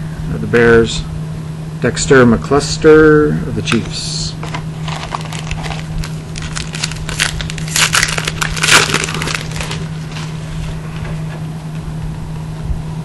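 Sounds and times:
foil wrapper crinkling and tearing: 0:04.4 - 0:10.5.

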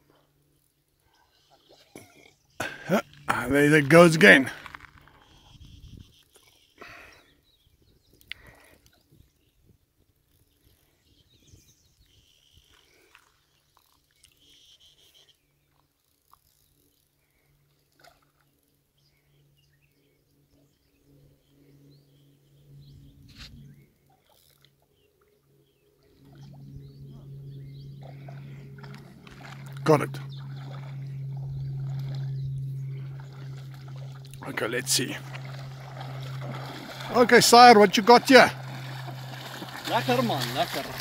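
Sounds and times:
faint bird chirps: 0:01.0 - 0:02.6, 0:10.3 - 0:15.8
faint low hum: 0:16.5 - 0:41.0.

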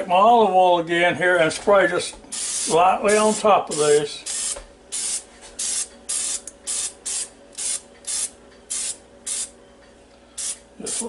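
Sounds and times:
oil sprayer hissing: 0:10.4 - 0:11.0.

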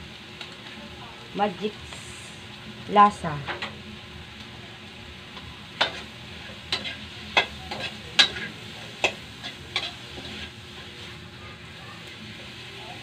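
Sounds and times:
low sizzle of frying: 0:00.0 - 0:13.0
utensil scraping metal wok: 0:05.6 - 0:11.3.

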